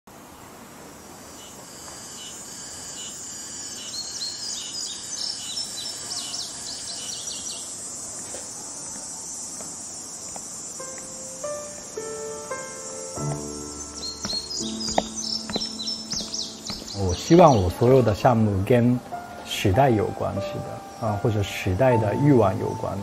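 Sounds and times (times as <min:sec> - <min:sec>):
high-pitched insect drone: 0:01.0 - 0:18.1
birds chirping: 0:01.2 - 0:23.0.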